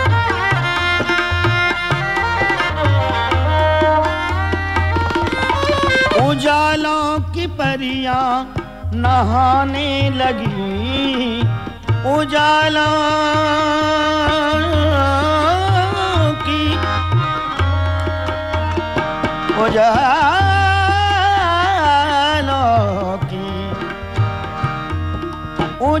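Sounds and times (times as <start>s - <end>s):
sliding melody with vibrato: 0.0s - 6.9s
tabla keeping time: 0.0s - 26.0s.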